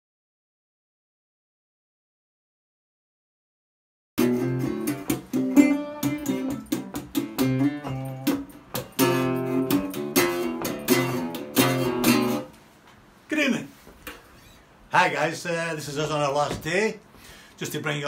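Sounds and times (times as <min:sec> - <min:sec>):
resonator guitar strumming chords: 0:04.2 - 0:12.5.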